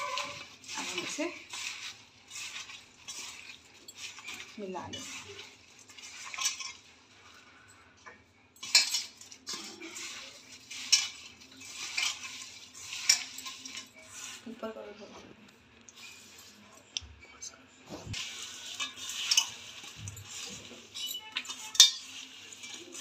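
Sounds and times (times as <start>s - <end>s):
mango pieces scraping in metal bowl: 0.0s - 6.9s, 8.6s - 14.6s, 18.2s - 23.0s.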